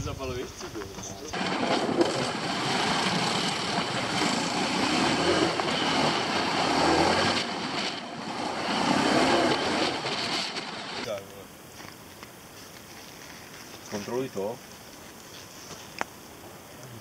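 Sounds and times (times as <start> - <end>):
motorcycle engine revving: 1.3 - 11.2.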